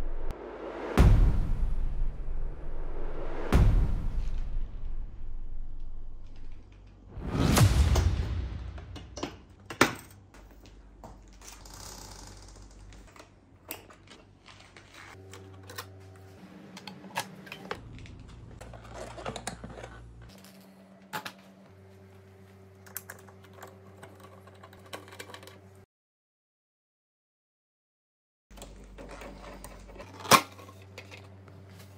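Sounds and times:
low hum: 0.0s - 9.6s.

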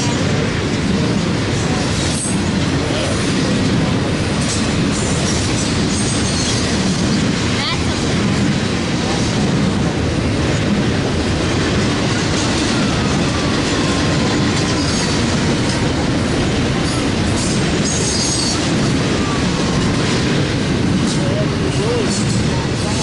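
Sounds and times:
train wheels rumbling on rail: 0.0s - 23.0s.

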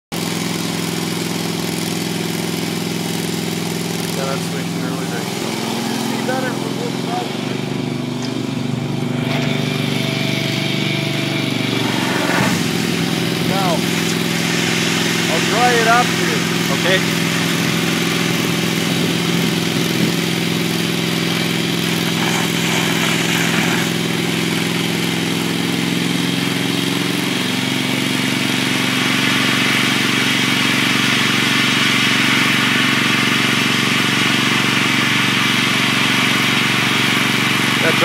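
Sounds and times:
engine-driven pump and compressor: 0.1s - 38.0s
hiss of foam discharging: 11.6s - 19.2s, 21.2s - 24.5s.

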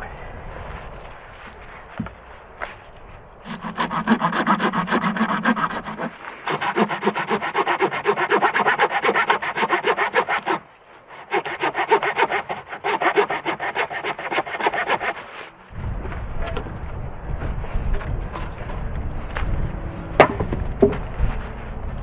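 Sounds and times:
hand saw cutting log: 3.4s - 15.5s.

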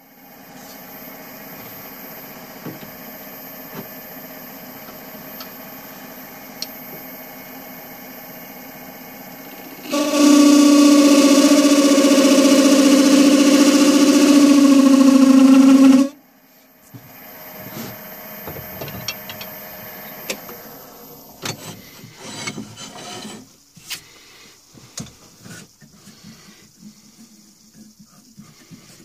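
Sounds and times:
wood lathe cutting hum: 9.4s - 16.2s
tool rubbing on wood: 21.5s - 23.6s.

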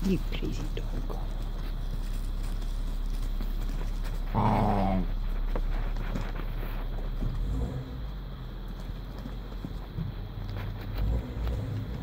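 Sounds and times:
puppy play growl: 0.0s - 8.2s.

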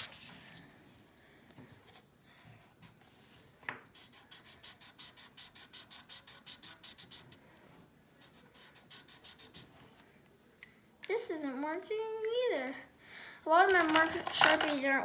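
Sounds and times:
marker scratching on paper: 2.6s - 7.6s, 8.2s - 10.0s.

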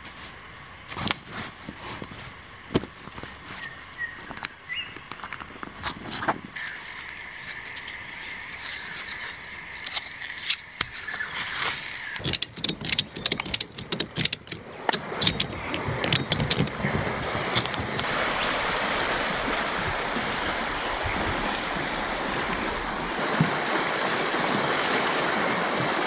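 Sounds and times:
ratchet buckle clicking: 12.1s - 16.7s.

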